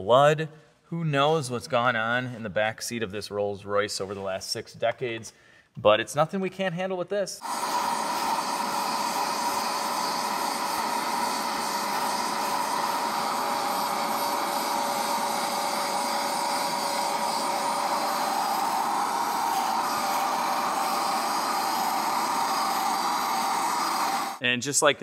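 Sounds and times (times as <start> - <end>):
hiss: 7.4 - 24.4
suction motor whine: 7.4 - 24.4.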